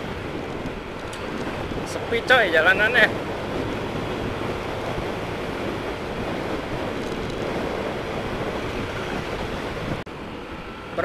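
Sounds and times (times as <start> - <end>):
wind rush on microphone: 0.0 - 11.0
scooter engine: 2.9 - 11.0.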